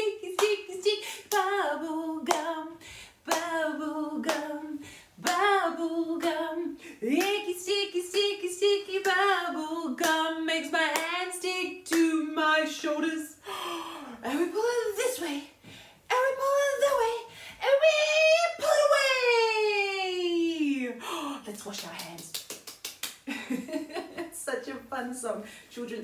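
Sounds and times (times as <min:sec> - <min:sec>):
woman singing: 0:00.0 - 0:13.4, 0:14.1 - 0:20.8
hand claps: 0:00.4 - 0:00.6, 0:02.3 - 0:02.5, 0:03.3 - 0:03.6, 0:04.2 - 0:04.5, 0:21.7 - 0:23.3.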